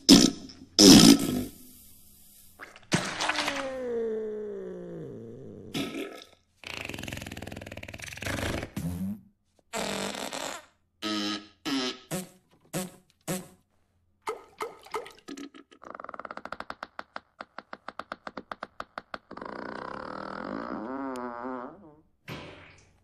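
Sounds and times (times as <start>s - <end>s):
comic fart noises: 0.0s - 1.8s, 3.2s - 13.6s, 15.2s - 22.8s
sputtering rattle of pops: 15.6s - 19.7s.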